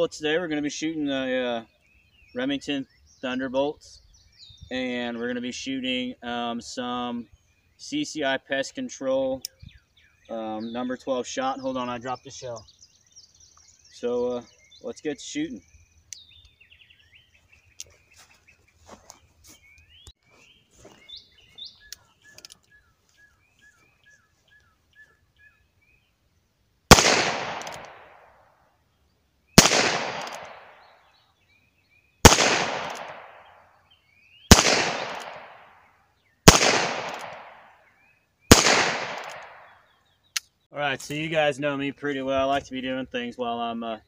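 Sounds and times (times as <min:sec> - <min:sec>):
birds chirping: 0:00.0 - 0:44.0
revolver shots echoing: 0:26.9 - 0:28.2, 0:29.6 - 0:30.9, 0:32.2 - 0:33.5, 0:34.5 - 0:35.7, 0:36.5 - 0:37.6, 0:38.5 - 0:39.7.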